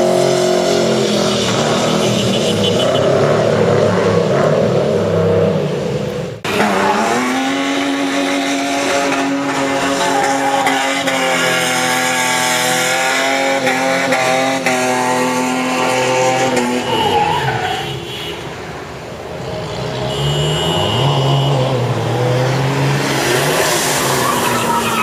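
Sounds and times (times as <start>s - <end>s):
car engine revving high: 0.0s - 16.9s.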